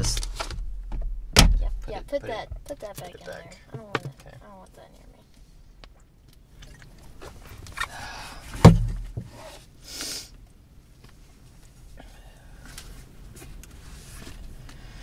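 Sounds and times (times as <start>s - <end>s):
rustling inside a car: 0.0s - 9.8s, 10.6s - 15.0s
glove box lid thump: 8.6s - 9.3s
short burst of hiss: 9.8s - 10.3s.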